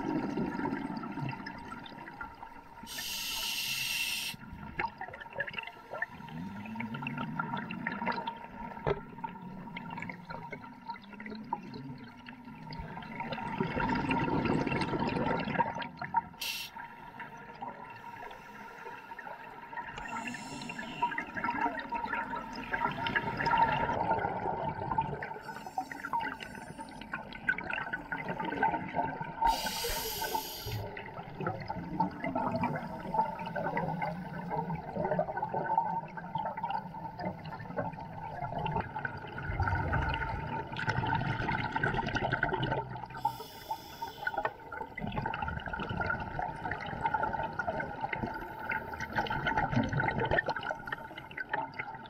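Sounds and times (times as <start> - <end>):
bubbles gurgling underwater: 0.0 - 2.8, 4.4 - 16.4, 19.2 - 43.4, 44.2 - 52.0
hissing regulator inhalation: 2.9 - 4.4, 29.5 - 30.9, 43.2 - 44.4.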